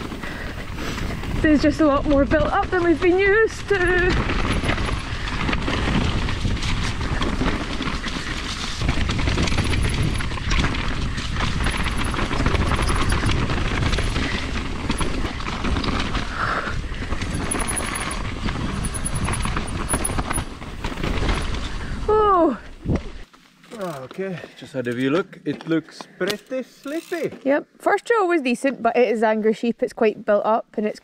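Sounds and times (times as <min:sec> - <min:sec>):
bike rattling over roots: 0:00.0 - 0:22.5, 0:23.2 - 0:24.1, 0:26.8 - 0:27.3
tyre noise and wind: 0:00.0 - 0:27.9.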